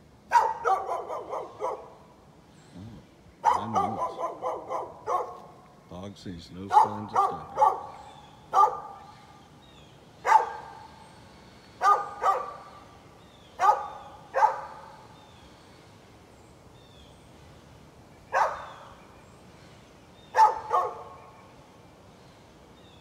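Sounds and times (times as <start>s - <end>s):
dog barking: 0.3s - 2.0s, 3.4s - 5.5s, 6.7s - 9.0s, 10.2s - 10.8s, 11.8s - 12.7s, 13.6s - 14.9s, 18.3s - 18.8s, 20.3s - 21.2s.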